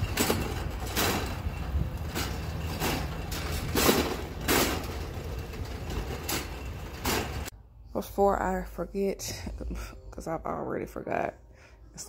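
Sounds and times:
cart rattling scrapes: 0.0s - 7.5s
shopping cart wheels rumbling: 0.0s - 7.5s.

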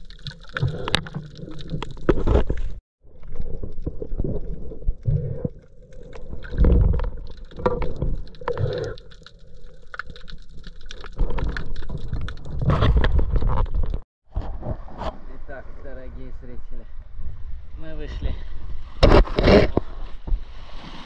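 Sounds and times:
underwater rumbling and gurgling: 0.0s - 15.0s
underwater clicks and knocks: 0.2s - 14.4s.

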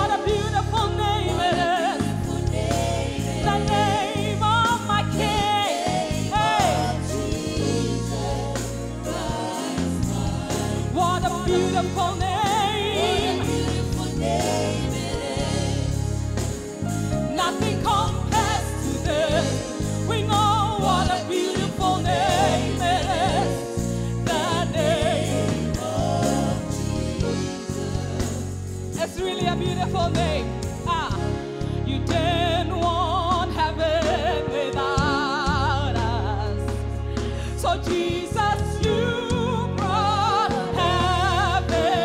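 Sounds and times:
singers with heavy vibrato: 0.0s - 16.3s, 17.3s - 29.4s
band with full bass: 0.0s - 42.0s.

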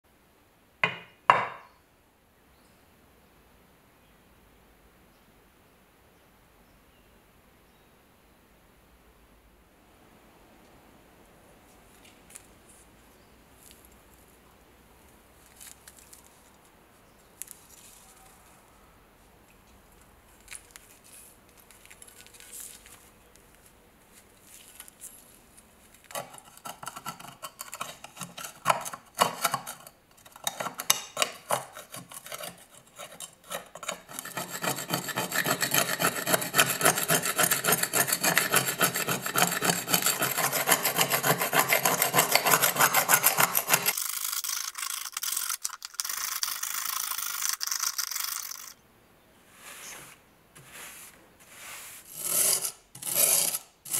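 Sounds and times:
metal scraper rasping rust: 26.1s - 48.8s, 52.0s - 53.9s.

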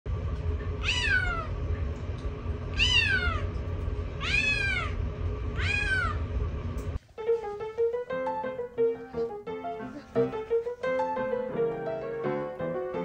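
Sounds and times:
steady low rumble: 0.1s - 7.0s
kitten meowing: 0.8s - 1.5s, 2.8s - 3.5s, 4.2s - 5.0s, 5.6s - 6.2s.

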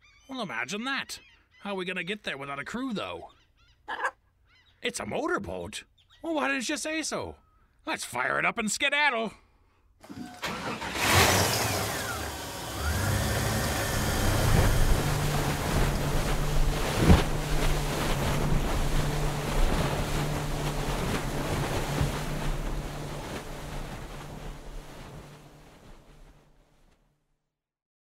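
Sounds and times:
wind: 9.4s - 26.9s
water rushing: 10.0s - 26.6s
motorboat engine running: 10.0s - 26.8s.

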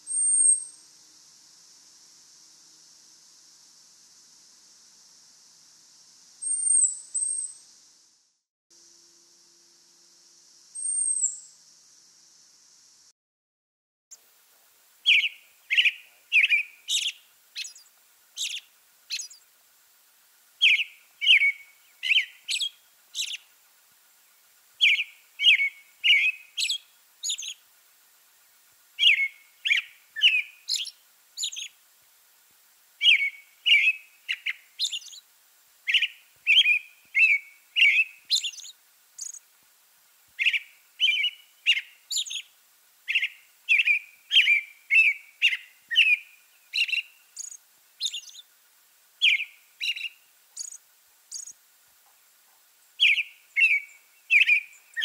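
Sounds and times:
robin singing: 0.0s - 1.8s, 6.4s - 7.7s, 10.8s - 11.6s, 15.0s - 19.5s, 20.6s - 23.5s, 24.8s - 27.7s, 29.0s - 31.8s, 33.0s - 39.5s, 40.4s - 48.5s, 49.2s - 51.6s, 52.8s - 55.0s.

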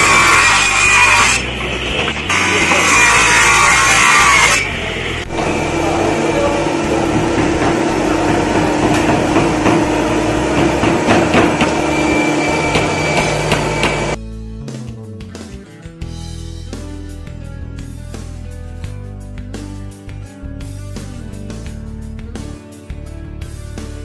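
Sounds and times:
table saw cutting wood: 0.0s - 14.2s.

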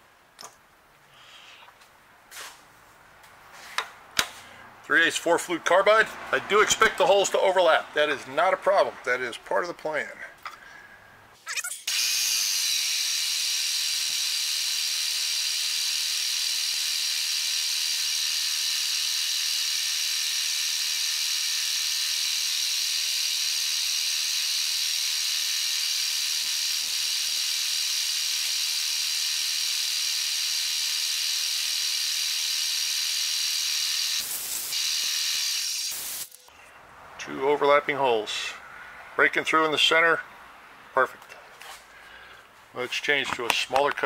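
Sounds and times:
coolant mist hissing: 33.8s - 36.4s.

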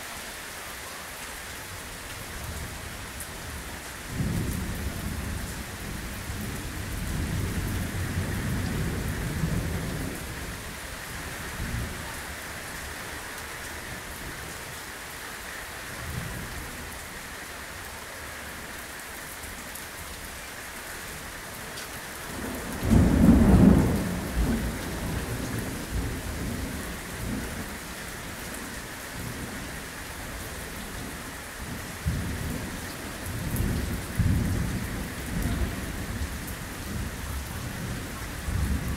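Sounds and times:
torrential rain hissing: 0.0s - 38.9s
thunder rumbling: 22.3s - 27.7s, 33.3s - 38.9s
loud thunderclap: 22.4s - 25.2s.

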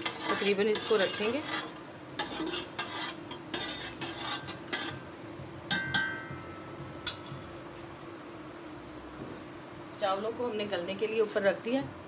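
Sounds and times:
metal spoon stirring in a pot: 0.0s - 5.0s
spoon clinking against metal pot: 5.7s - 6.4s.

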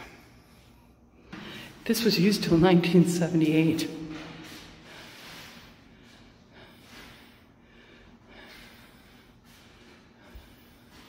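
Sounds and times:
person breathing heavily: 0.0s - 1.8s, 4.1s - 11.0s.

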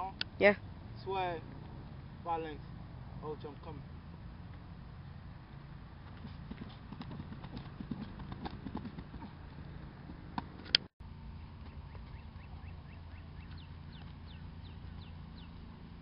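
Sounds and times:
steady low rumble: 9.3s - 16.0s.

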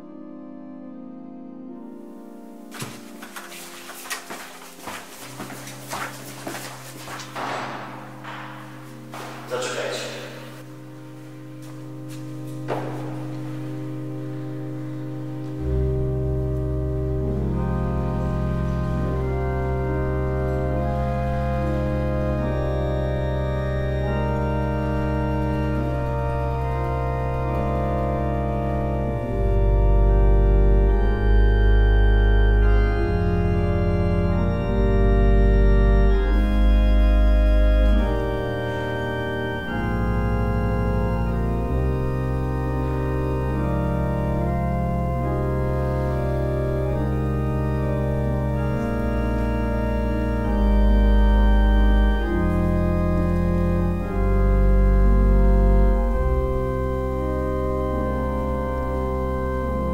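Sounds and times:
slow organ music: 0.0s - 59.9s.

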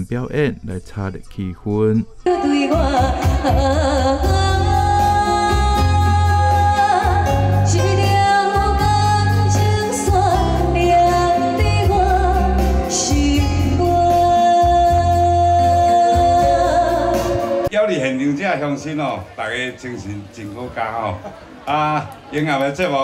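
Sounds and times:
keyboard: 0.0s - 19.4s
woman singing into a microphone: 2.3s - 17.7s
strong bass: 2.8s - 17.4s.

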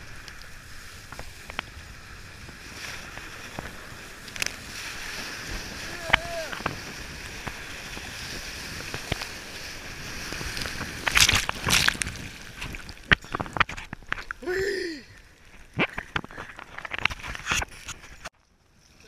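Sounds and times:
water rushing: 0.0s - 15.9s
heavy water splashes: 0.0s - 16.7s
foam slapping and sloshing: 2.6s - 13.6s.

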